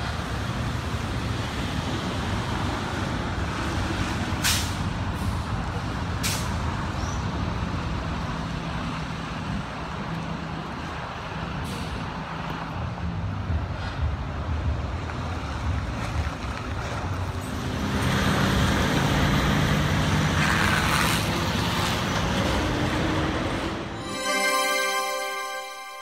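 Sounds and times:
traffic on wet road: 0.0s - 24.0s
short music jingle: 24.0s - 26.0s.

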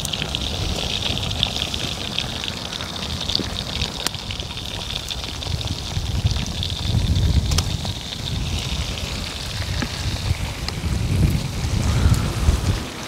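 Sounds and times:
fish frying in hot oil: 0.0s - 13.0s.

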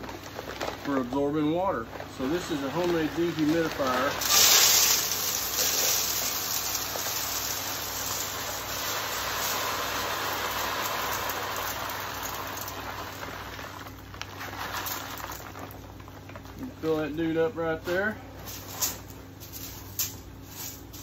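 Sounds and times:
salt crystals pouring into metal can: 0.0s - 16.2s.

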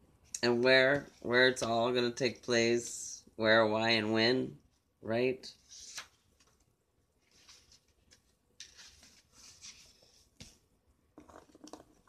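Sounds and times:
paper cards rustling: 5.6s - 10.6s.

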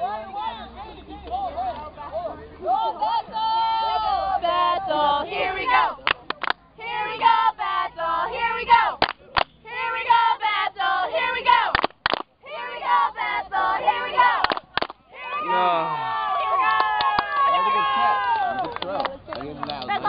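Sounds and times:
young voices shouting and cheering: 15.0s - 18.8s.

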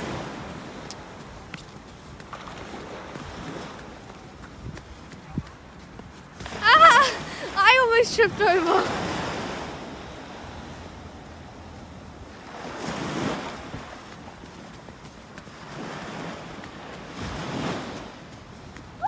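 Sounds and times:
surf washing on beach: 0.0s - 19.0s
wind buffeting microphone: 0.0s - 19.0s.

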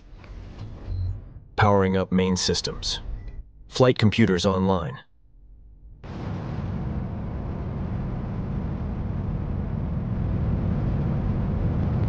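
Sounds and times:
rocket engines rumbling: 5.8s - 12.0s.

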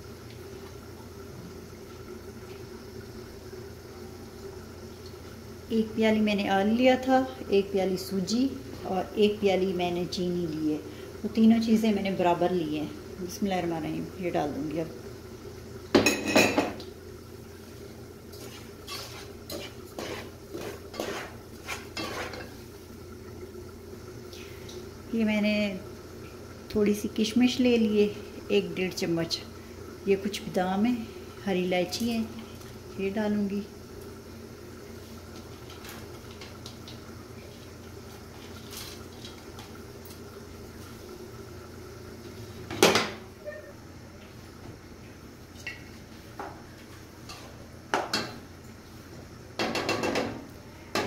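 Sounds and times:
syrup bubbling in a pot: 0.0s - 51.0s
spoon scraping pot: 18.4s - 22.5s.

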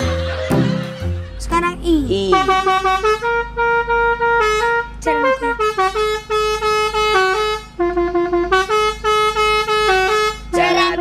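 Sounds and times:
air horns playing a tune: 2.2s - 11.0s.

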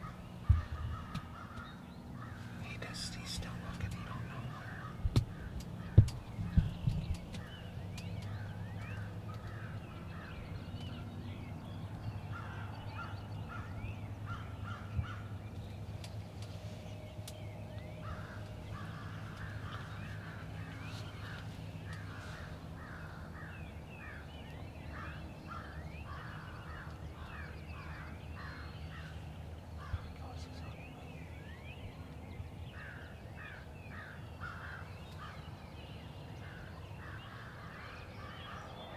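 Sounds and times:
crows cawing: 0.0s - 2.6s, 4.1s - 6.2s, 9.0s - 10.3s, 12.3s - 15.3s, 18.0s - 24.3s, 24.9s - 29.2s, 32.7s - 35.4s
low hum: 0.0s - 33.8s.

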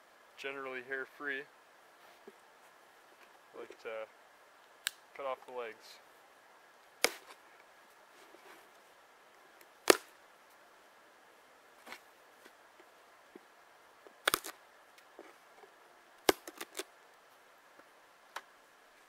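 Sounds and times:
knife cracking bone on wood: 14.3s - 14.5s.

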